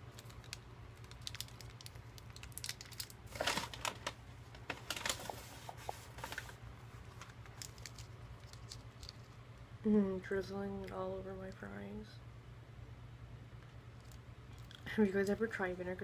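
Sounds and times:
paper wrapper crinkling: 0:00.0 - 0:09.4
steady low hum: 0:00.0 - 0:16.0.

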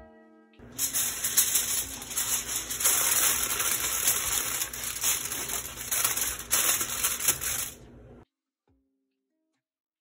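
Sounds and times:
aluminium foil crinkling: 0:00.6 - 0:07.8.

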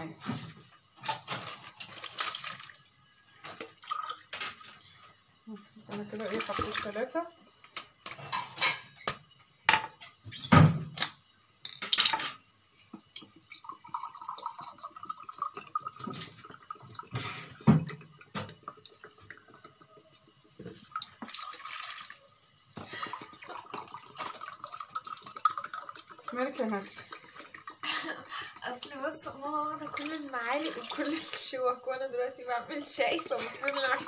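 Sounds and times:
liquid trickling into glass: 0:01.7 - 0:07.1, 0:13.0 - 0:31.4
glass and bottle knocking on counter: 0:09.1 - 0:10.0.

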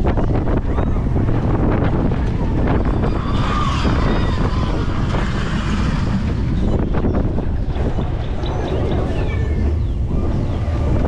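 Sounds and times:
roller coaster wheels rumbling: 0:00.0 - 0:11.0
wind buffeting microphone: 0:00.0 - 0:11.0
high squeal: 0:02.8 - 0:07.2.

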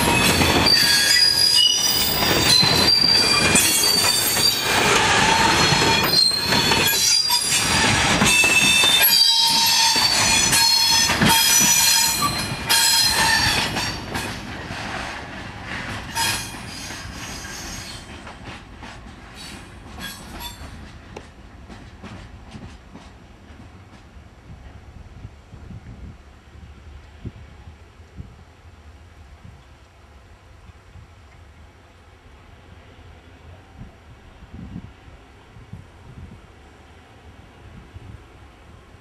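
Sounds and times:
train wheels squealing: 0:00.0 - 0:14.4, 0:16.1 - 0:18.3, 0:19.3 - 0:20.8
clatter from the track: 0:00.0 - 0:24.8.

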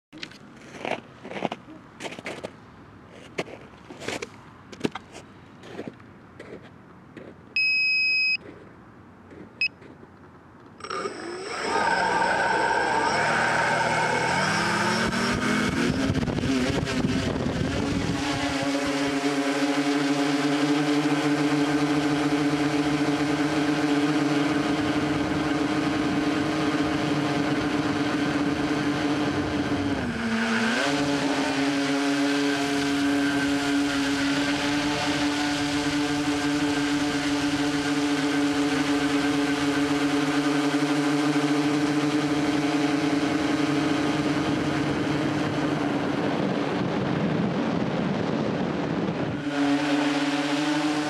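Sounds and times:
electronic beeps: 0:07.6 - 0:08.4, 0:10.9 - 0:16.2
drone motors and propellers whining: 0:10.6 - 0:51.0.

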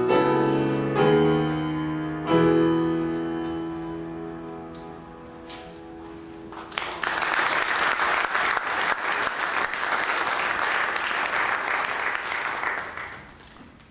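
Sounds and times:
piano chord: 0:00.0 - 0:07.0
audience applause: 0:06.5 - 0:13.6.

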